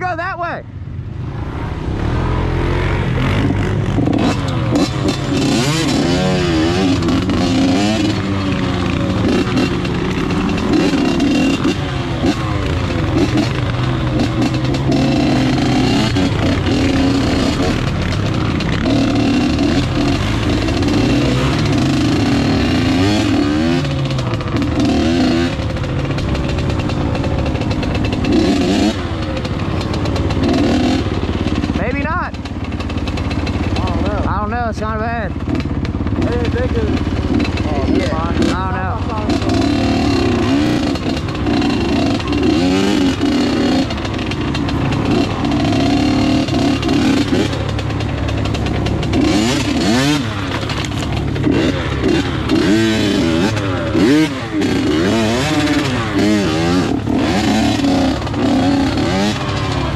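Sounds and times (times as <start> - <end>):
off-road vehicle engine revving: 0.0 - 59.9.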